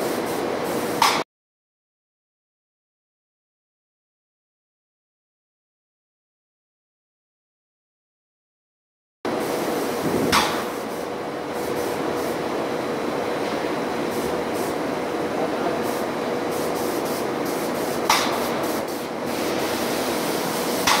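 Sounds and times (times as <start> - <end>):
spray gun hissing: 0.0 - 1.2, 9.3 - 12.5, 13.9 - 14.9, 15.6 - 21.0
short sharp click: 1.0 - 1.2.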